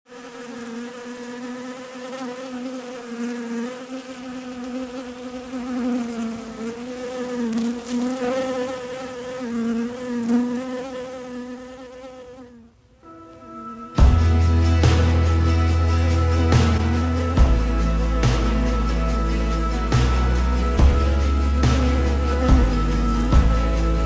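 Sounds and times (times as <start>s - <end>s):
honeybee buzzing in flight: 0.1s - 24.0s.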